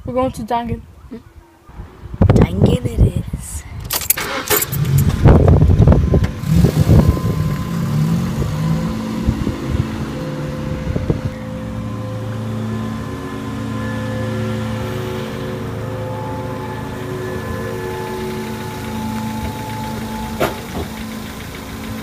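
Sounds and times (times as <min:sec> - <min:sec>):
car engine running: 0:04.3 - 0:22.0.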